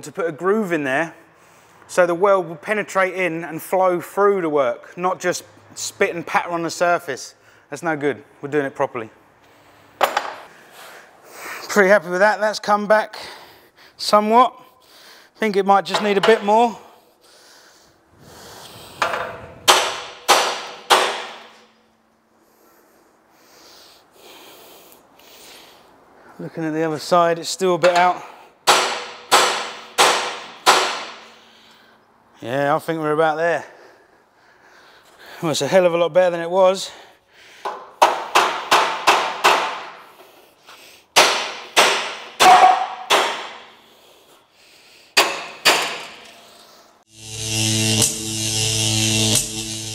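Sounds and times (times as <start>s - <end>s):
hammer striking steel rail: 19.0s - 21.7s, 27.8s - 31.3s, 41.2s - 43.7s, 45.2s - 46.4s.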